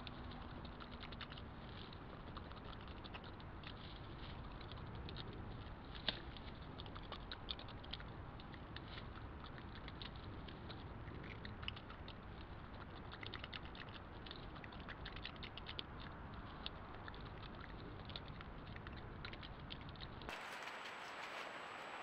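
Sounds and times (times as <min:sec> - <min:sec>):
animal chewing and crunching: 0:00.0 - 0:22.0
steady hiss: 0:20.3 - 0:22.0.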